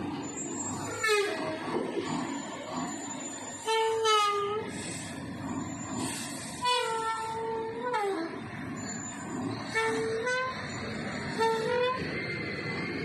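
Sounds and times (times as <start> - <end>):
truck engines rumbling: 0.0 - 13.0
truck horn blasts: 6.6 - 8.4, 9.7 - 10.6, 11.3 - 12.0.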